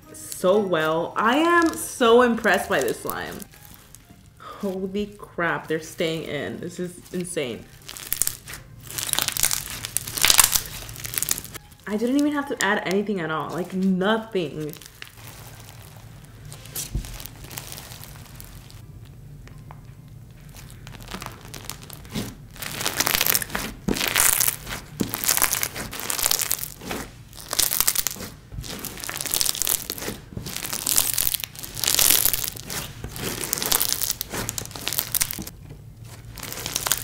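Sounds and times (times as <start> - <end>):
slime squishing by hand: 1.2 - 5.1, 7.0 - 13.9, 14.5 - 37.0.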